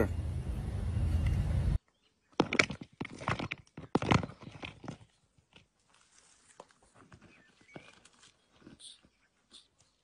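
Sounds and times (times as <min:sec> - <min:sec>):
tortoise shell clattering on gravel: 0:02.4 - 0:05.7.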